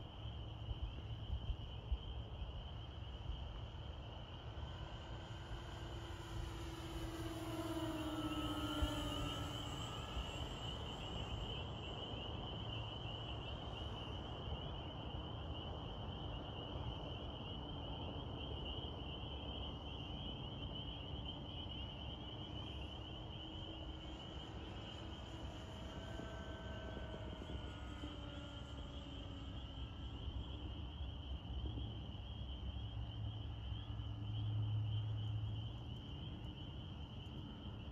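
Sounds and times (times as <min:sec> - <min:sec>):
distant model plane motors humming: 0:00.0 - 0:37.9
outdoor background noise: 0:00.0 - 0:37.9
high-pitched buzz: 0:04.4 - 0:13.6, 0:22.9 - 0:30.9.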